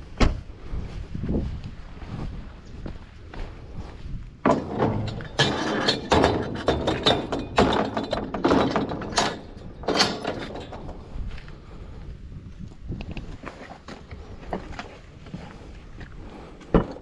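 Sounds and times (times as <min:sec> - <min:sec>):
metal gate clanking and rattling: 0:04.4 - 0:11.2.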